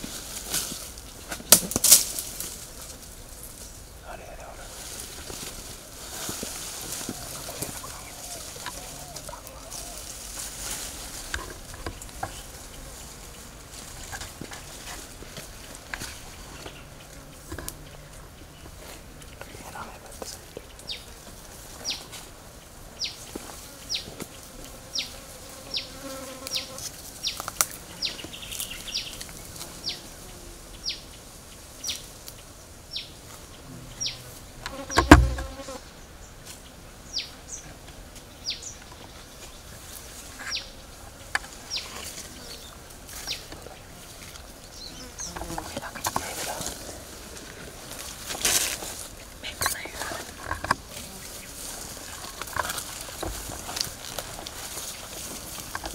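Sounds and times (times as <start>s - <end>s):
loud thump: 34.9s - 35.6s.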